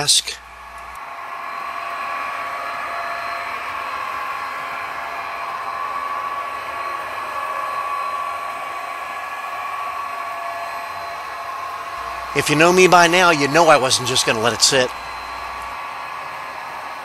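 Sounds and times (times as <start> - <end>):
high whine: 0.0 - 17.0
model train motor whirring: 10.2 - 17.0.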